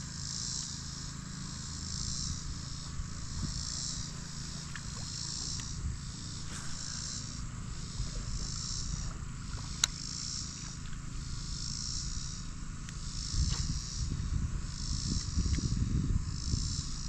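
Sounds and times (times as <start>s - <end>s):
insects buzzing in pulses: 0.0s - 17.0s.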